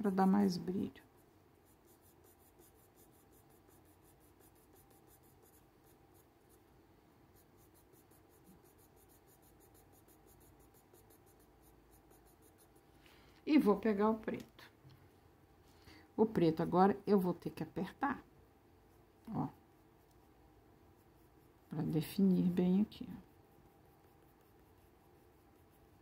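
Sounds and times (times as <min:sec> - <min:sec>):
pencil scratching on paper: 0:00.0 - 0:06.7, 0:07.3 - 0:12.9, 0:18.9 - 0:26.0.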